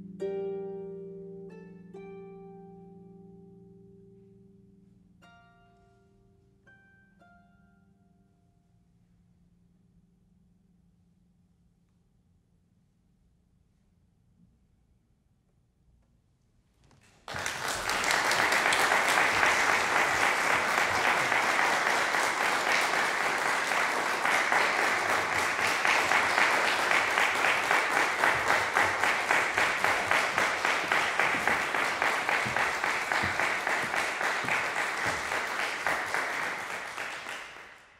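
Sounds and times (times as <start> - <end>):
audience applauding: 17.3 - 37.9.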